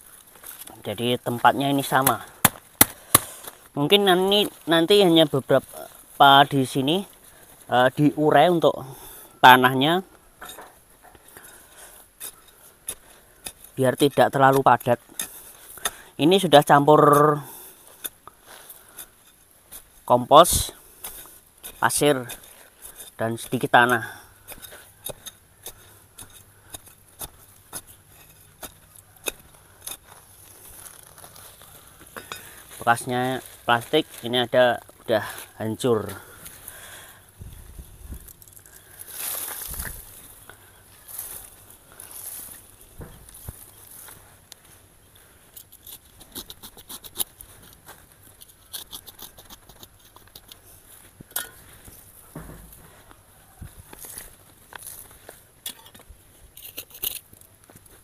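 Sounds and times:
hand tool scraping soil: 0:00.0 - 0:58.0
digging tool jabbing into soil: 0:01.8 - 0:03.6.

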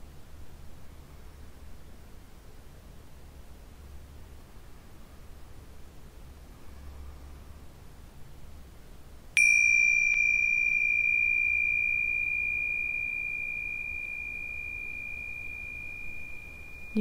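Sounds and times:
tingsha cymbals ringing: 0:09.4 - 0:17.0.

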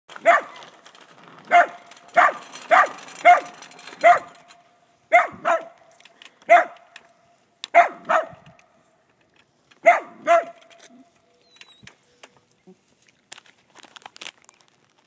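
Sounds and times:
dog barking: 0:00.2 - 0:00.6, 0:01.5 - 0:04.4, 0:05.1 - 0:05.8, 0:06.5 - 0:06.8, 0:07.7 - 0:08.4, 0:09.8 - 0:10.6.

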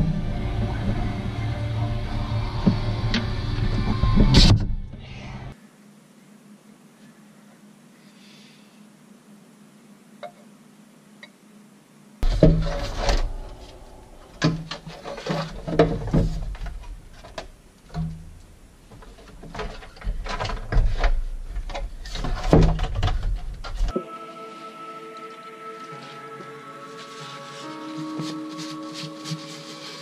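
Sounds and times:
faint hum: 0:00.0 - 0:28.0
knocks and clunks of parts: 0:12.2 - 0:23.9.

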